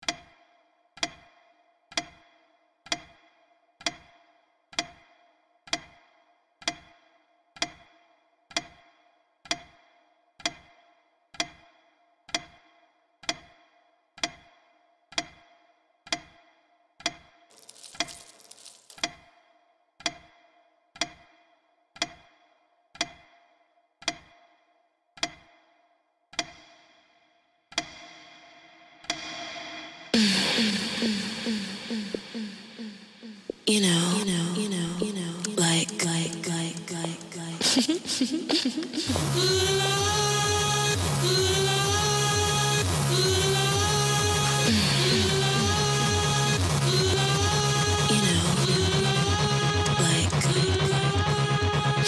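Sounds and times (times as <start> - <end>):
clock ticking with ringing tone: 1.9 - 2.2, 2.9 - 3.2, 3.8 - 4.1, 4.8 - 5.0, 5.7 - 6.0, 7.6 - 7.9, 9.5 - 9.8, 10.4 - 10.7, 11.4 - 11.6, 12.3 - 12.6, 13.2 - 13.6, 14.2 - 14.5, 15.1 - 15.4, 16.1 - 16.4, 20.0 - 20.3, 21.0 - 21.3, 22.0 - 22.3, 23.0 - 23.3, 24.0 - 24.3, 25.2 - 25.5, 26.3 - 26.6.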